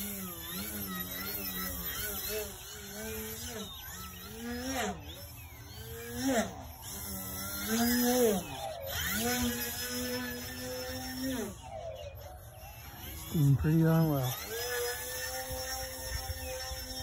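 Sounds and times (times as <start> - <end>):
model plane motor whining: 0.0 - 17.0.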